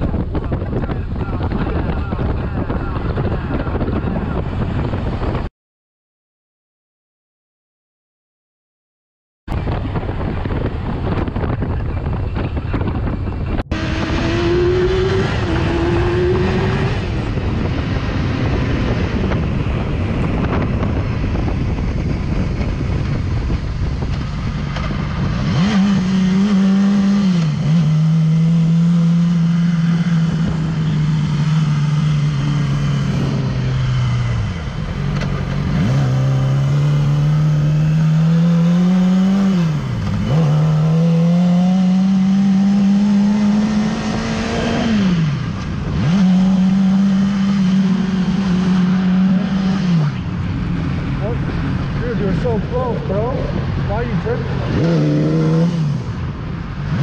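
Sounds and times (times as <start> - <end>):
wind noise: 0.0 - 5.5, 9.5 - 57.0
motorcycle engine: 9.5 - 57.0.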